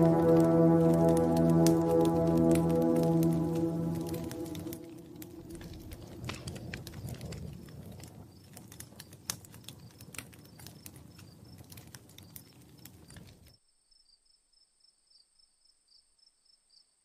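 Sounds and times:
wood fire crackling and popping: 0.0 - 13.5.

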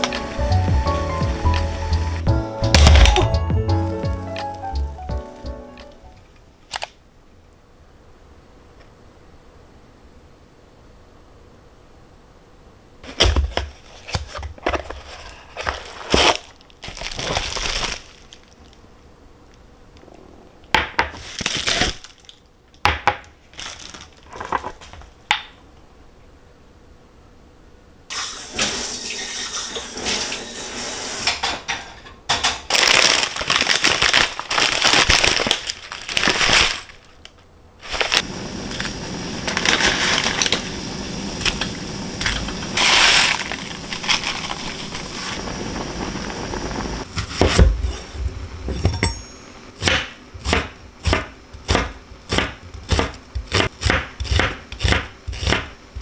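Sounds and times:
bubble wrap crinkling: 1.6 - 5.5, 13.2 - 18.8, 21.2 - 22.4, 23.4 - 25.0, 32.7 - 40.8, 41.4 - 46.2.

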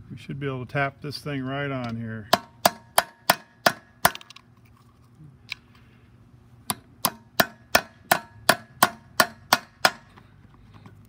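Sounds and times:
hammer tapping metal: 2.3 - 4.3, 6.7 - 10.1.

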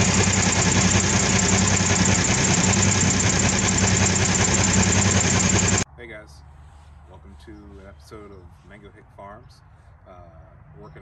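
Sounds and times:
diesel truck engine idling: 0.0 - 5.8.

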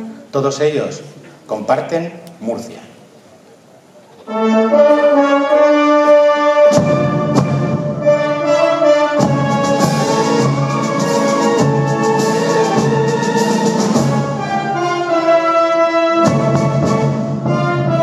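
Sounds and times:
wind band brass chords: 4.2 - 18.0
percussion strokes: 6.0 - 14.9.

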